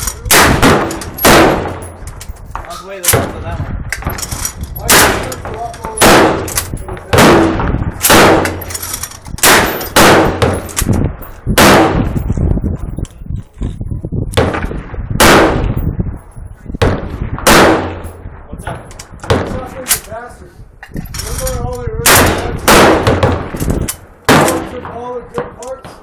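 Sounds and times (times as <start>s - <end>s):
gunshots echoing: 0.2s - 4.2s, 4.8s - 12.2s, 14.4s - 15.8s, 16.8s - 18.4s, 22.0s - 25.5s.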